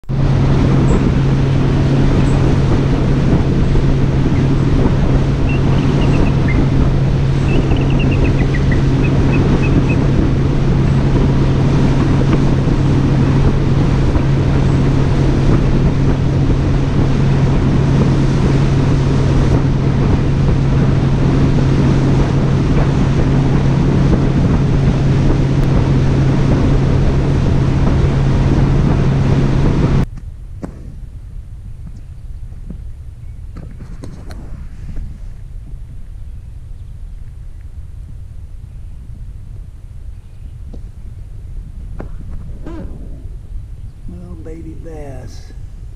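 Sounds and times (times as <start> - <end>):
outboard motor humming: 0.0 - 30.1, 32.4 - 45.9
wind on microphone: 0.0 - 45.9
water rushing past hull: 0.1 - 30.1.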